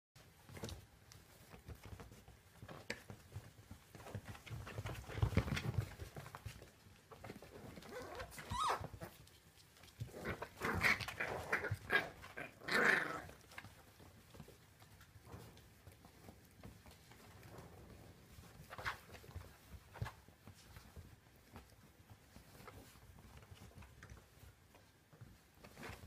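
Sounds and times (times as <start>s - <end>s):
puppies growling: 7.2s - 14.4s
puppies yelping and yapping: 7.9s - 9.2s.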